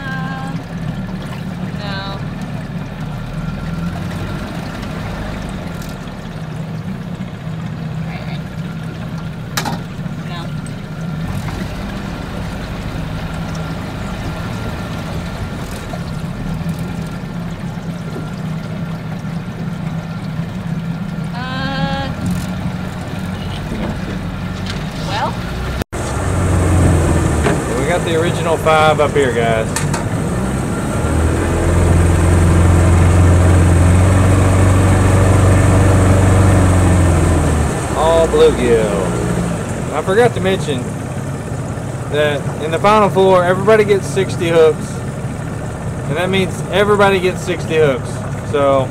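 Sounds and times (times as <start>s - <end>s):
small boat motor running: 0.0s - 48.9s.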